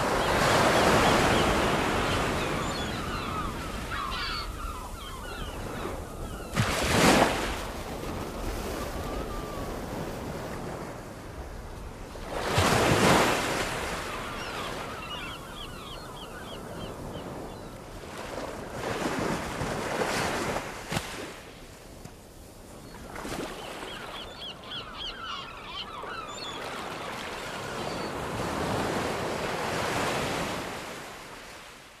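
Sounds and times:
birds chirping: 0.0s - 6.6s, 13.9s - 17.9s, 23.6s - 28.4s
ocean waves breaking: 0.0s - 32.0s.

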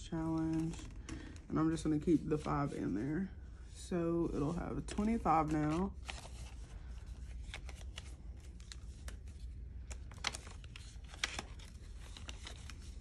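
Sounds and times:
paper banknotes rustling: 0.2s - 3.0s, 4.4s - 13.0s.

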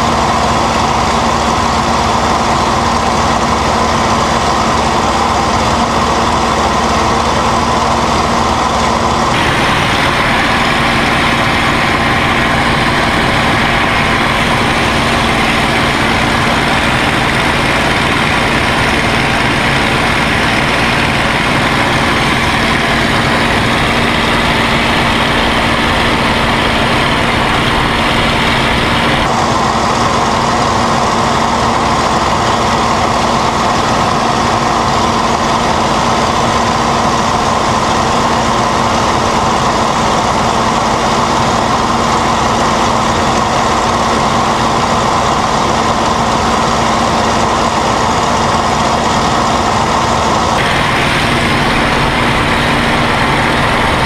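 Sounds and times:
aircraft engine droning: 0.0s - 54.0s.

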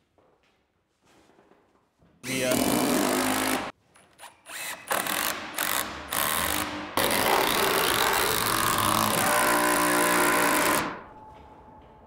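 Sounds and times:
cordless drill driving screw into wood: 4.5s - 11.0s.

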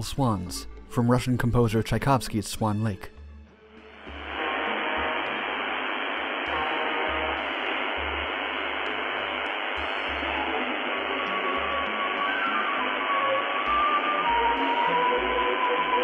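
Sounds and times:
faint steady radio tones: 3.8s - 16.0s
radio static hiss: 3.8s - 16.0s.

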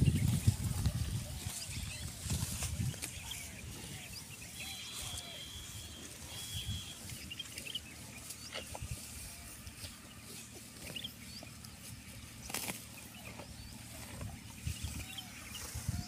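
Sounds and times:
animal chewing grass: 0.0s - 16.0s
faint high chirps: 4.2s - 7.8s.

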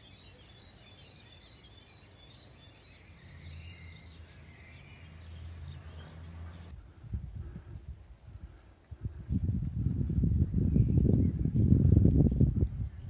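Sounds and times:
birds chirping: 0.0s - 7.6s.

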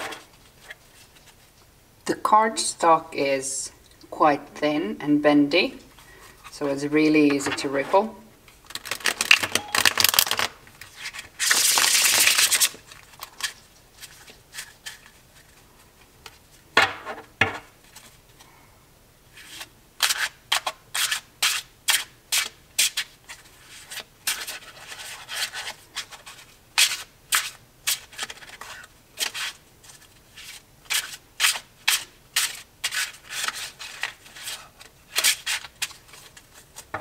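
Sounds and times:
cards riffle shuffled: 8.7s - 15.6s.

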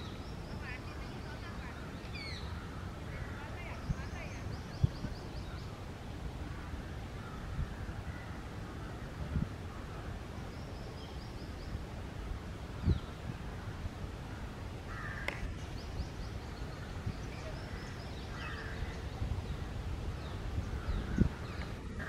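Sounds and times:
bird calls: 0.0s - 5.8s, 14.3s - 22.0s.

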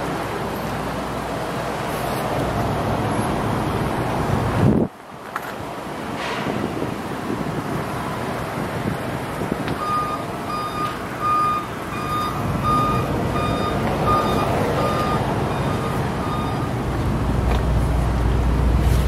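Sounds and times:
low vehicle rumble: 0.0s - 19.0s
outdoor noise: 0.0s - 19.0s
backup alarm beeping: 9.8s - 16.9s.

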